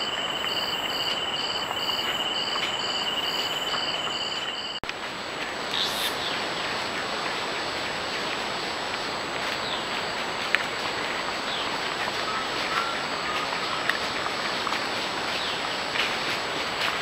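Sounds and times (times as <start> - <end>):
crackles in dry leaf litter: 0.0 - 17.0
steady hiss: 0.0 - 17.0.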